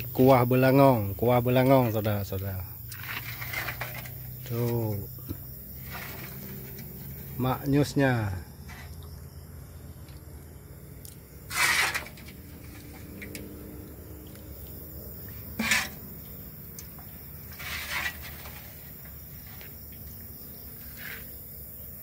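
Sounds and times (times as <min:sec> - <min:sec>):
metal ladle scraping wok: 0:02.9 - 0:04.6, 0:05.7 - 0:07.4, 0:11.4 - 0:13.4, 0:15.3 - 0:16.3, 0:16.9 - 0:19.7, 0:20.8 - 0:21.4.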